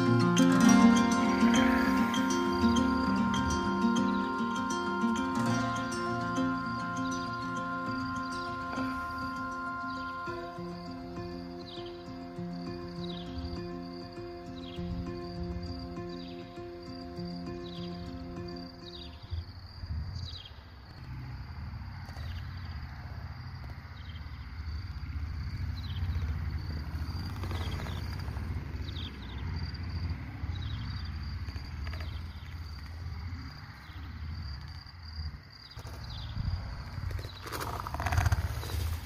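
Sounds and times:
faint high-pitched chirps: 0.0 - 21.1
wind buffeting microphone: 19.0 - 20.5, 36.0 - 39.0.

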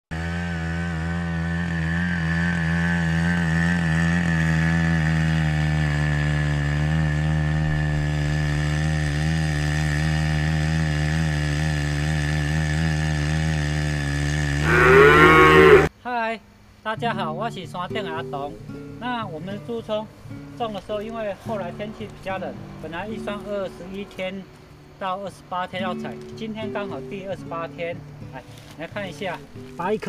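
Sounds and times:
small petrol engine running: 0.1 - 15.9.

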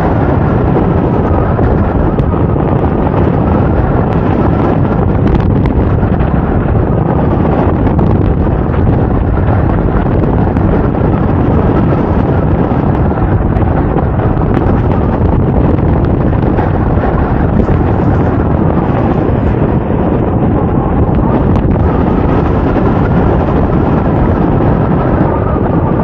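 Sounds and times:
wind rumble on microphone: 0.0 - 26.0.

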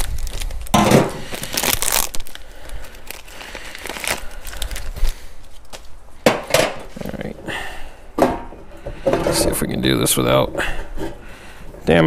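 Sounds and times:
plastic parts crinkling and clicking: 0.0 - 6.9.

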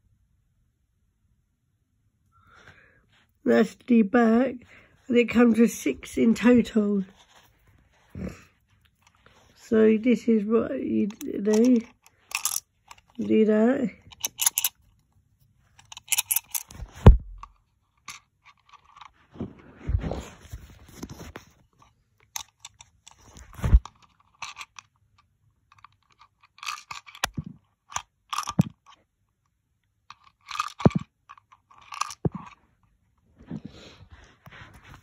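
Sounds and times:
handling clicks and knocks: 11.0 - 15.1, 15.8 - 19.1, 25.8 - 29.0, 30.1 - 32.6.

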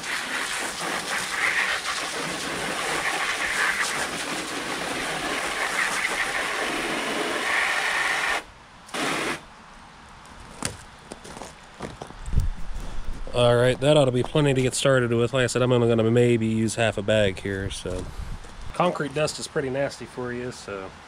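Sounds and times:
hose spraying water into tub: 0.0 - 9.4.

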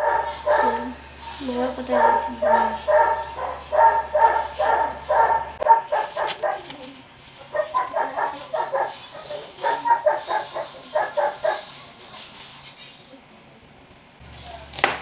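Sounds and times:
dog barking: 0.0 - 6.9, 7.5 - 11.9.

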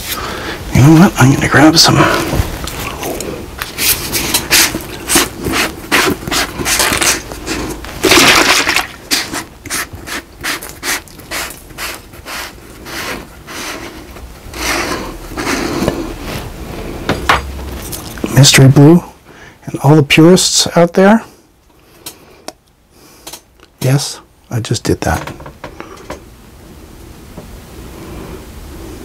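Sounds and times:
plastic jar scraping: 2.0 - 16.6.

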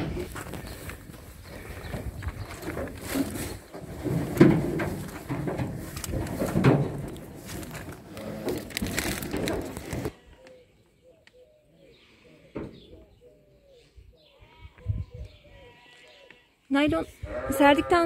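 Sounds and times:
plastic sheeting crinkling: 5.8 - 10.1.

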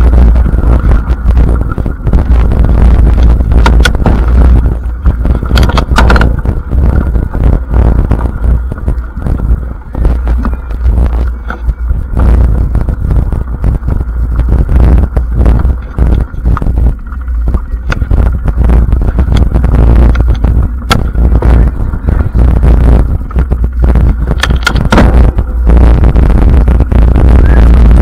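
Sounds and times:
wind rumbling on microphone: 0.0 - 28.0
bike rattling with sharp clicks: 5.3 - 6.5, 24.3 - 25.2.

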